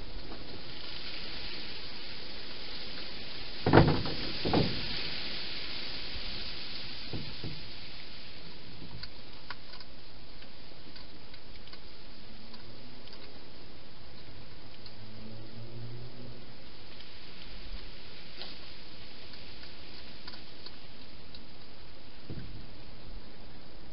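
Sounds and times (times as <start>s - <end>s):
steady hiss: 0.0s - 23.9s
faint light clicks: 8.4s - 15.0s.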